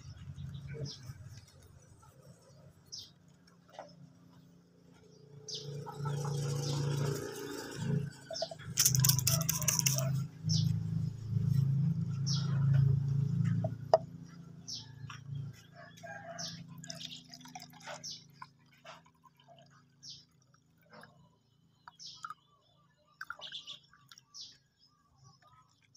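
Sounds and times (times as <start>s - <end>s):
water trickling into bottle: 8.6s - 10.2s, 16.8s - 24.5s
bird chirps: 21.8s - 25.6s.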